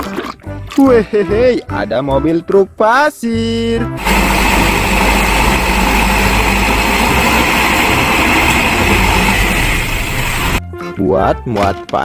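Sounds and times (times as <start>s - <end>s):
diesel truck engine running: 4.0s - 10.6s.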